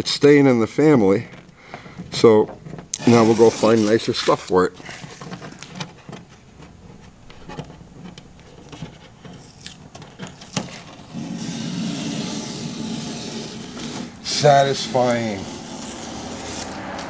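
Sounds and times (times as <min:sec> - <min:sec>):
masking tape peeling rasp: 0:01.0 - 0:17.0
fingernail scratching tape: 0:02.9 - 0:06.2, 0:07.2 - 0:17.0.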